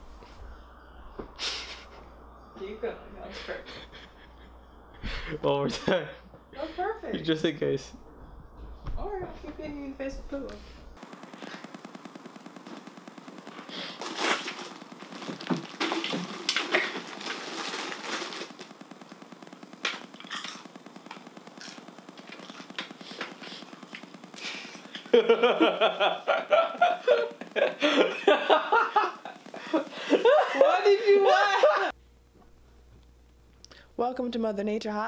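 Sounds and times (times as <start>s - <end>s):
rustling: 10.6s - 19.4s
people laughing loudly: 25.0s - 31.9s.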